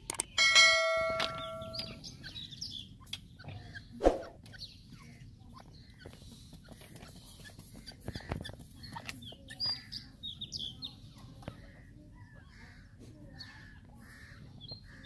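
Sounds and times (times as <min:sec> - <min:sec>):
francolins high chirping calls: 0:00.4 - 0:03.0.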